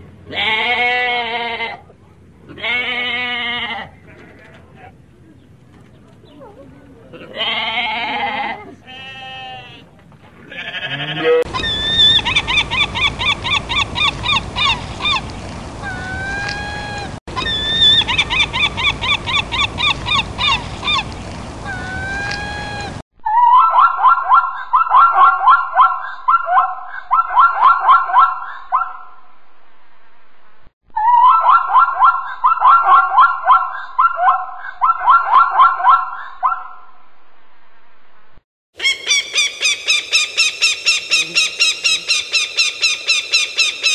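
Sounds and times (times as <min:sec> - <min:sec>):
gulls calling: 0:10.4 - 0:29.2, 0:31.0 - 0:36.9, 0:38.8 - 0:43.9
zebra yelping barks: 0:23.4 - 0:29.1, 0:31.1 - 0:36.8.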